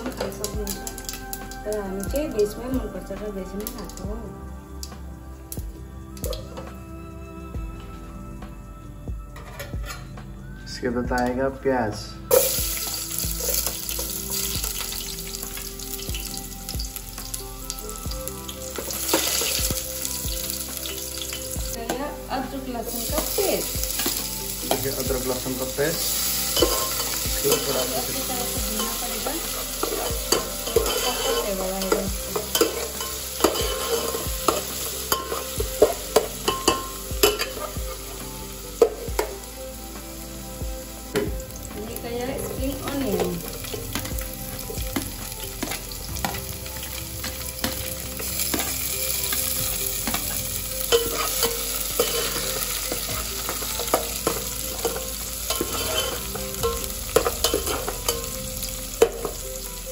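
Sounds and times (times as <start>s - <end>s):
onions sizzling in oil: 0.0s - 6.8s, 12.3s - 59.9s
ladle scraping and clinking on pot: 26.5s - 27.9s, 29.8s - 37.9s, 50.1s - 58.3s.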